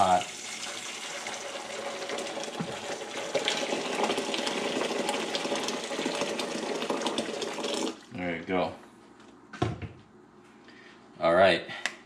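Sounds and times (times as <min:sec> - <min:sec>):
water pouring into metal bowl: 0:00.0 - 0:08.1.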